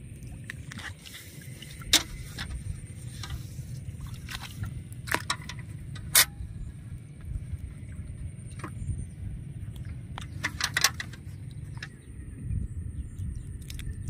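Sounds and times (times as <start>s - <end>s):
water splashing and dripping: 0.0s - 6.3s
steady low rumble: 0.0s - 14.0s.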